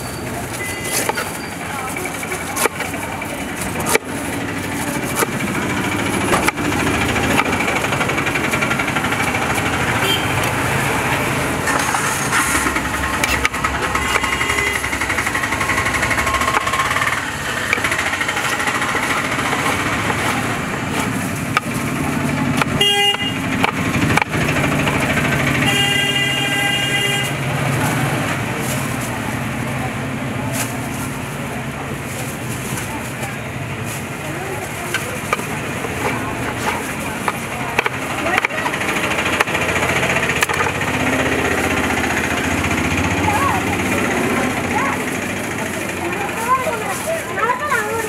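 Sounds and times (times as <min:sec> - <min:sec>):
engines and motorcycles: 0:00.0 - 0:48.0
vehicle horns honking: 0:09.8 - 0:10.7, 0:13.7 - 0:17.2, 0:22.8 - 0:23.6, 0:25.5 - 0:27.5.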